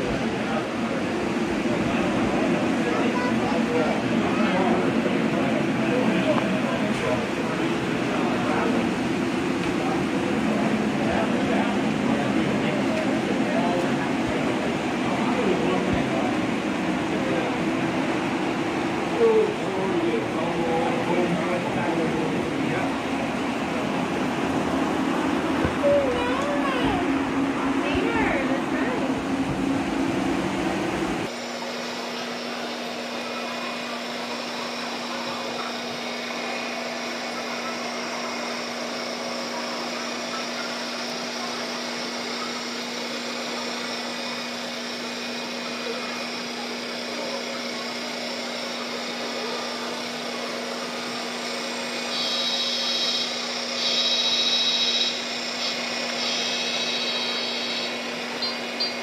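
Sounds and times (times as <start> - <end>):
small electric motor whirring: 40.8 - 59.0
short high-pitched horn tones: 52.1 - 58.0.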